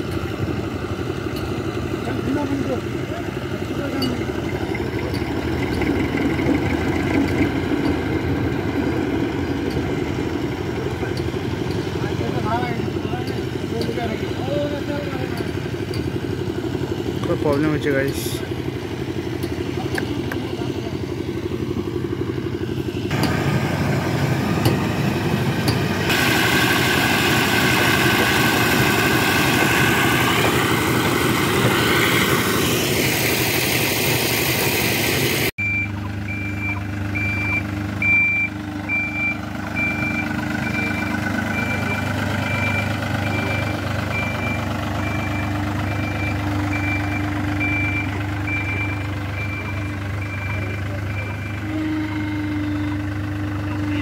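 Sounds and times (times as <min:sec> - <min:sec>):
heavy machine engine running: 0:00.0 - 0:54.0
road roller diesel engine: 0:00.0 - 0:54.0
reversing alarm beeping: 0:35.6 - 0:54.0.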